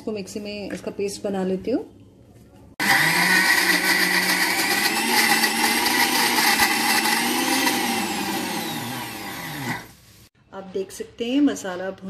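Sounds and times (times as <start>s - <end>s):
mixer grinder blending: 2.8s - 10.0s.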